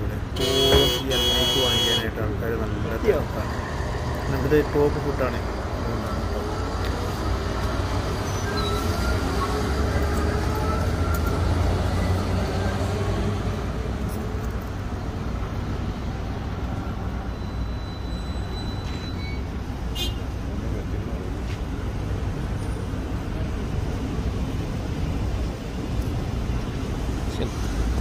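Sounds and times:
road traffic rumble: 0.0 - 28.0
vehicle passing by: 2.7 - 14.0.

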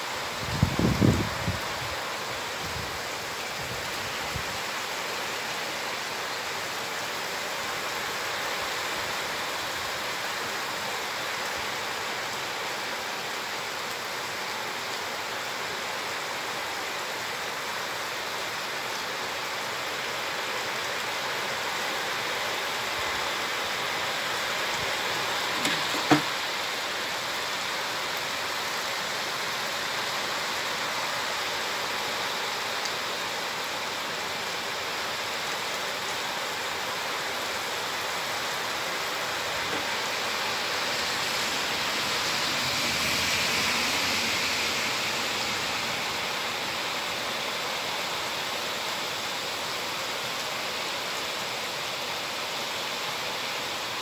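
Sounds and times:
heavy rain: 0.0 - 54.0
sharp knock: 25.6 - 26.3.

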